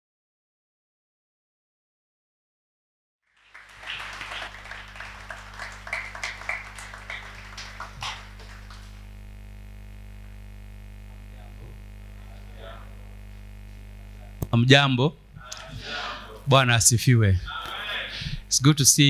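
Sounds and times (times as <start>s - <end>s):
congregation clapping and cheering: 3.2s - 9.2s
electrical mains hum: 3.4s - 19.0s.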